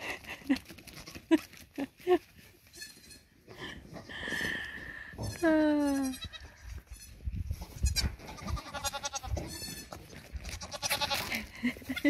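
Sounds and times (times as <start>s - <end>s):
goats bleating: 5.2s - 7.1s, 7.8s - 12.0s.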